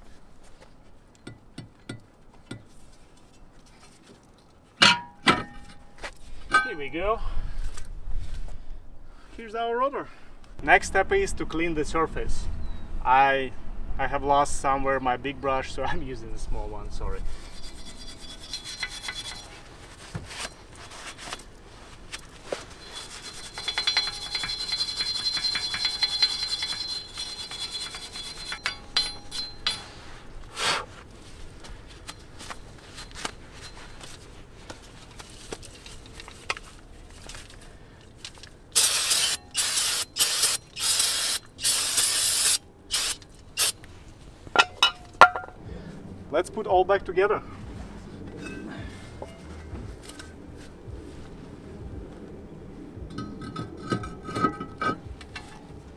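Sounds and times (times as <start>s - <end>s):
wire brush scrubbing metal: 17.3s - 19.6s, 22.8s - 30.1s.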